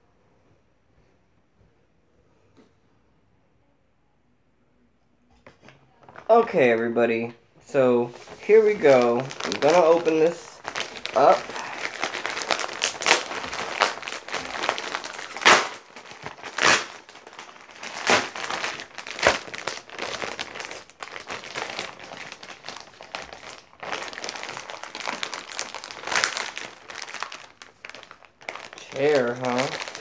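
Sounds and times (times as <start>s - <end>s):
plastic bag ripping: 6.0s - 6.5s, 7.8s - 30.0s
plastic bag crinkling: 6.0s - 6.9s, 7.7s - 30.0s.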